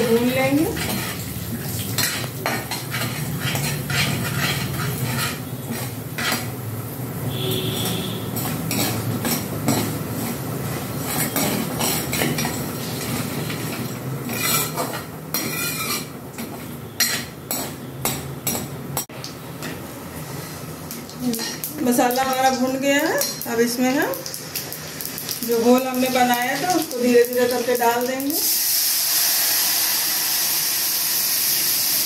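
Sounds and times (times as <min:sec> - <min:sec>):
light sizzle of frying: 0:00.0 - 0:32.0
metal ladle scraping a pan: 0:00.3 - 0:01.3, 0:02.0 - 0:06.5, 0:07.3 - 0:17.7.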